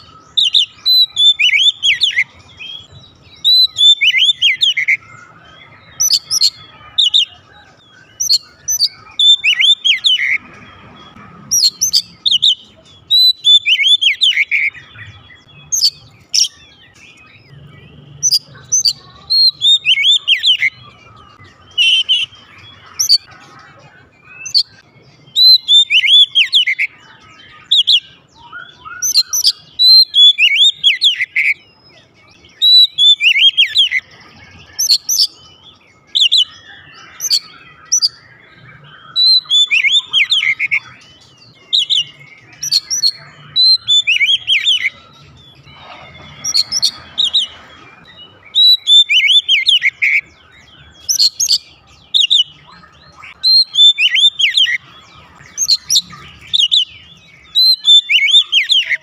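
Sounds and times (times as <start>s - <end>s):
bird singing whistles: 0.0s - 20.8s, 21.5s - 23.3s, 24.3s - 26.9s, 27.5s - 31.6s, 32.5s - 35.5s, 36.1s - 59.0s.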